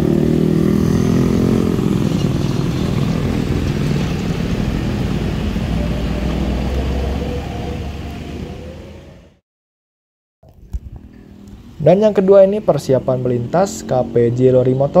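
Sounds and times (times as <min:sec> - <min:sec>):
motorcycle and car engines: 0:00.0 - 0:09.4, 0:11.0 - 0:15.0
steady low rumble: 0:01.5 - 0:09.4.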